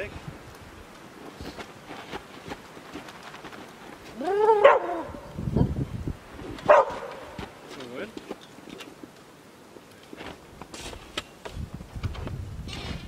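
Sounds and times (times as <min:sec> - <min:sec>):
dog yelping: 0:04.2 - 0:05.2, 0:06.7 - 0:07.2.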